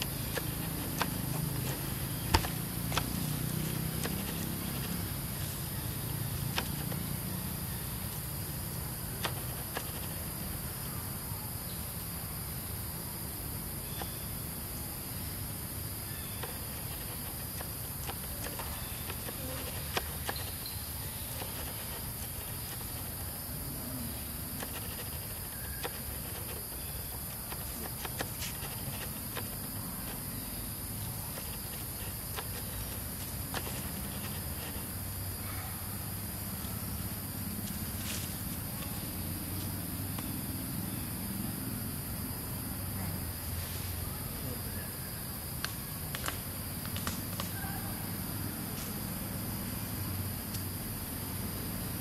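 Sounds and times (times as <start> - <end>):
insects droning: 0.0 - 52.0
clicks and rustles in leaves: 16.1 - 23.5.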